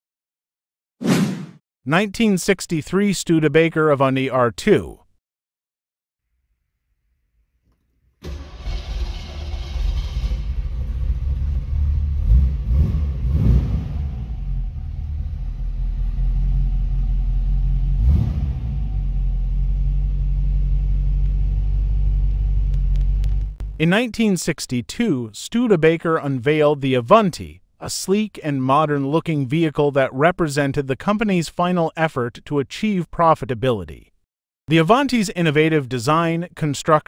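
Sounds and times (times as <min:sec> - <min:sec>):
car engine running and revving: 0:08.3 - 0:23.8.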